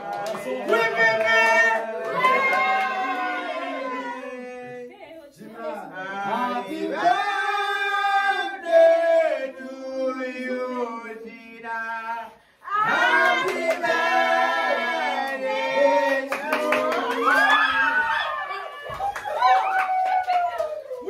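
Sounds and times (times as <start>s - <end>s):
group singing birthday song: 0.0s - 17.8s
hand clapping: 18.9s - 21.0s.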